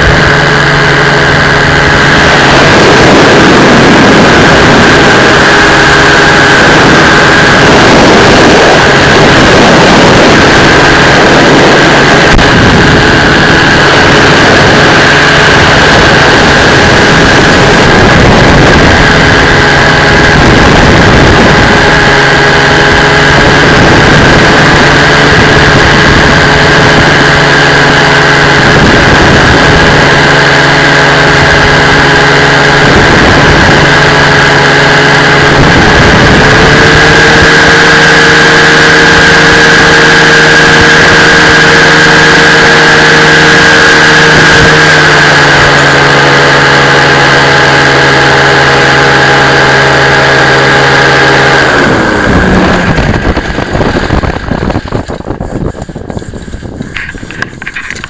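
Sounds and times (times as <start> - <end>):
aircraft engine and propeller: 0.0 - 58.0.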